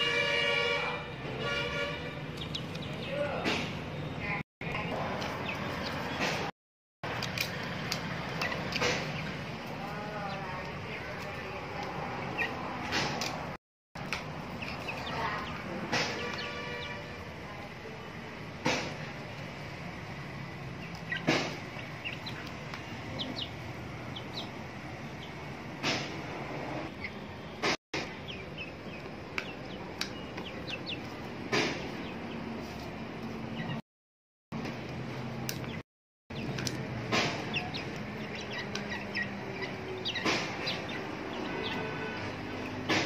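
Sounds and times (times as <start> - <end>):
chick peeping: 2.1 - 6.5, 7.8 - 13.5, 14.1 - 17.7, 20.0 - 33.8, 35.5 - 43.0
chickens scuffling: 7.4 - 17.2.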